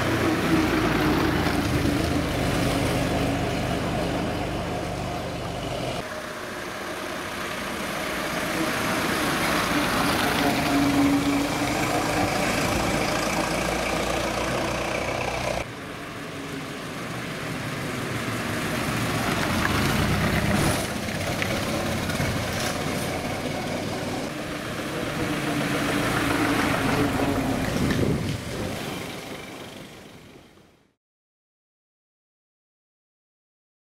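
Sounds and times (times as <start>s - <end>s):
vintage car engines running: 0.0s - 30.8s.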